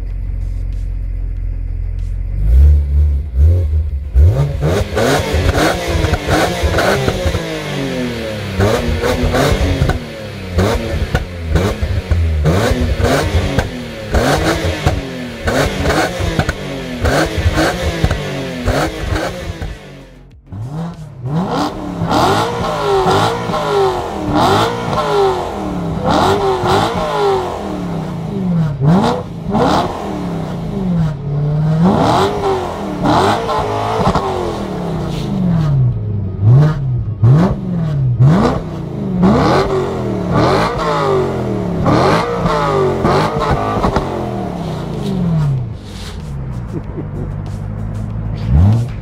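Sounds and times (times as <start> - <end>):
car engine revving: 0.0 - 49.0.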